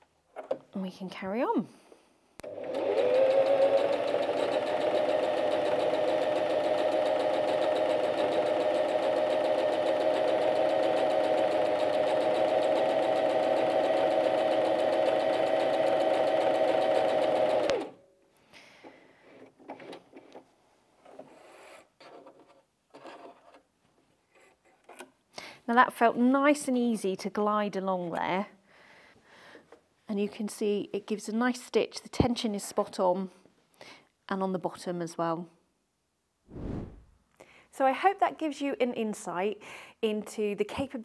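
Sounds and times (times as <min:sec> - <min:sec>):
sewing machine stitching: 0:02.4 - 0:17.9.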